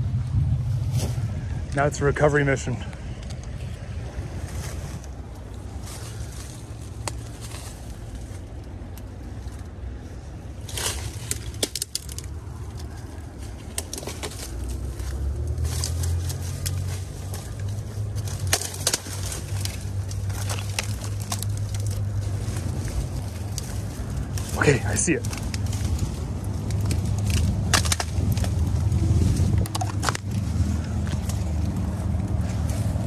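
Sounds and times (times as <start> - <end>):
low rumble: 0.0 - 33.0
leaves and branches rustling: 0.3 - 33.0
twigs snapping: 2.9 - 33.0.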